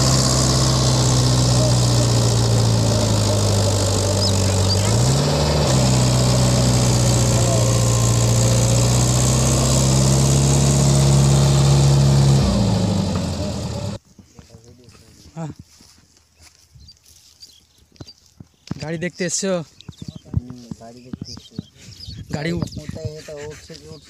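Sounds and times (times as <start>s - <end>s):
tractor diesel engine running hard: 0.0s - 14.0s.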